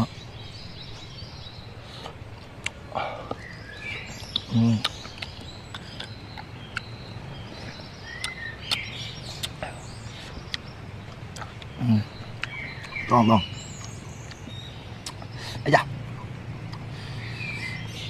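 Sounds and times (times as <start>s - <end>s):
bird chirp: 0.0s - 18.0s
low outdoor background noise: 0.0s - 18.0s.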